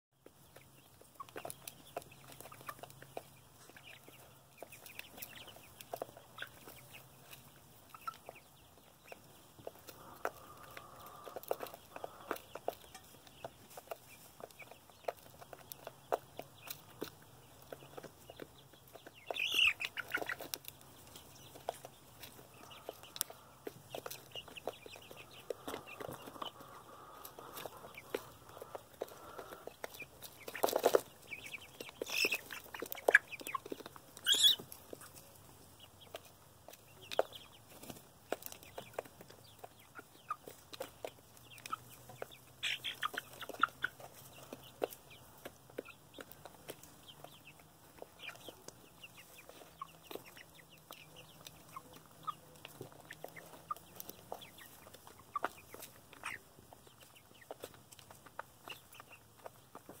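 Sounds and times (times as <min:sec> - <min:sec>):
chickens clucking and calling: 0:00.2 - 1:00.0
beaks pecking plastic pan: 0:09.2 - 0:35.1.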